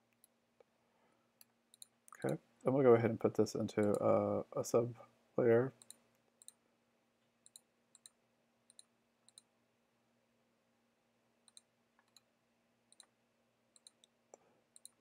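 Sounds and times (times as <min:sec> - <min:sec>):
computer mouse clicks: 0:01.4 - 0:02.4, 0:05.8 - 0:06.6, 0:07.4 - 0:09.5, 0:11.5 - 0:12.3, 0:12.9 - 0:13.1, 0:13.8 - 0:14.2, 0:14.8 - 0:15.0.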